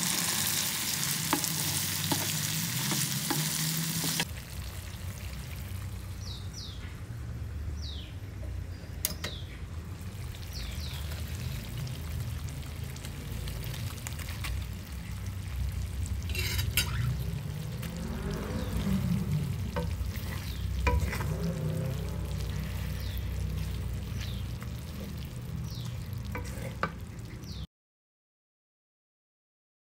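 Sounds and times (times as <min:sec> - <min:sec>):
food sizzling in oil: 0:00.0 - 0:06.2, 0:09.9 - 0:27.6
wooden spatula scraping wok: 0:00.1 - 0:04.3, 0:13.8 - 0:15.3, 0:16.0 - 0:27.6.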